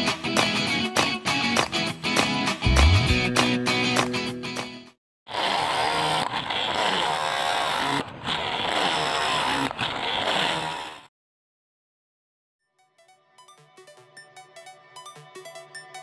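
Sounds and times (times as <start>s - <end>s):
drill cutting into wood: 5.3s - 11.1s.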